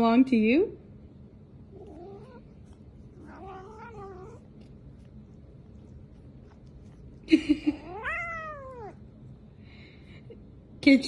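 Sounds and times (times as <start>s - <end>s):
cat meowing: 1.8s - 4.5s, 7.8s - 9.0s.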